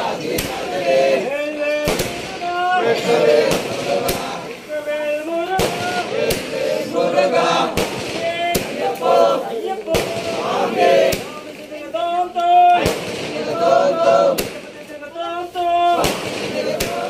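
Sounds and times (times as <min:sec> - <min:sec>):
group chanting in unison: 0:00.0 - 0:11.6, 0:12.2 - 0:17.0
sharp loud cracks: 0:07.6 - 0:09.2, 0:09.9 - 0:13.6, 0:16.0 - 0:17.0.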